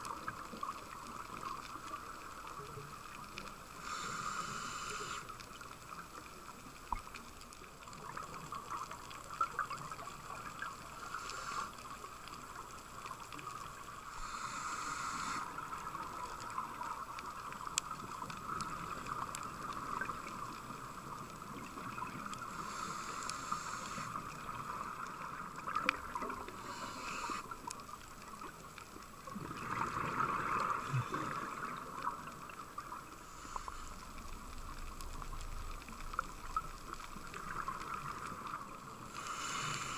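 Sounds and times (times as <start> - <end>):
underwater hiss: 0.0 - 39.9
diver breathing through regulator: 3.8 - 5.4, 11.0 - 11.9, 14.1 - 15.8, 22.5 - 24.4, 26.4 - 27.6, 39.1 - 39.9
exhaled bubbles rushing: 29.3 - 32.7.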